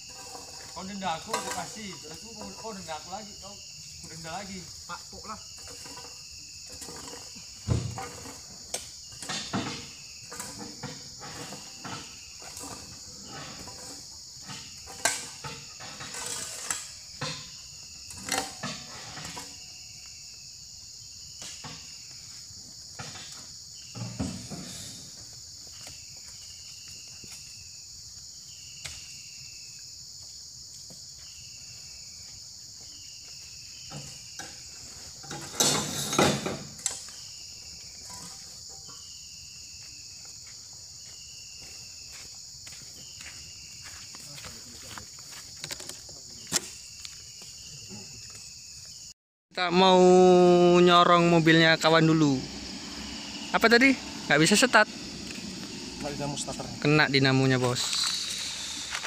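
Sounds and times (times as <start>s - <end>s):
insects droning: 0.0s - 59.0s
fruits being raked and scooped: 50.8s - 59.0s.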